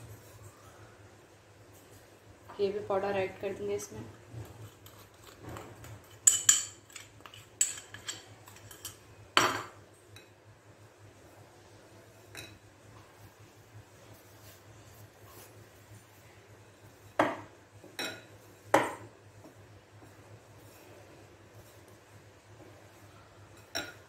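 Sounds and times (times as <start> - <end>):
hand working crumbly mixture: 2.6 - 8.9, 13.0 - 17.2.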